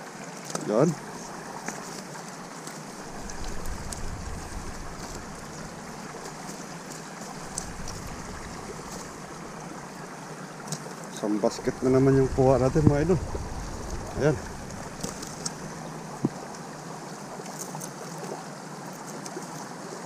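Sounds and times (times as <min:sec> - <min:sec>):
flowing river water: 0:00.0 - 0:20.0
low rumble: 0:03.0 - 0:10.0, 0:11.6 - 0:16.3.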